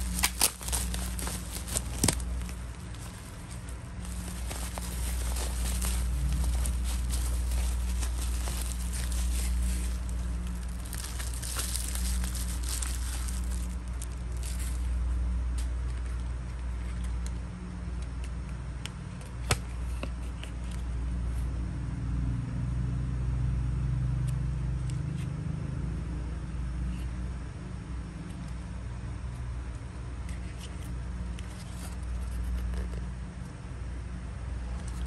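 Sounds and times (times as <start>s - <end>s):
bubble wrap crinkling: 0.0s - 15.0s
paper card rustling: 0.0s - 15.0s
steady low hum: 0.0s - 35.0s.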